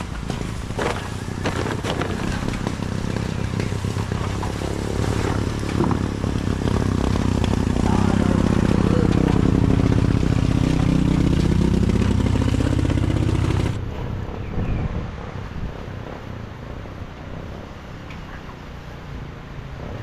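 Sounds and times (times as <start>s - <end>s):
small motorcycle engine running: 0.0s - 13.8s.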